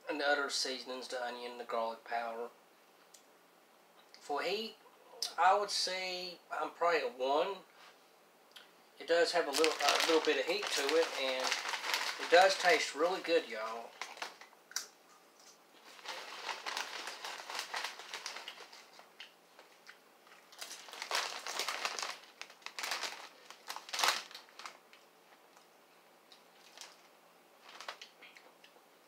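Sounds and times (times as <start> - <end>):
chip bag crinkling: 9.1 - 14.5, 15.8 - 25.1, 26.3 - 28.4
chips crunching: 9.4 - 14.8, 15.8 - 24.8.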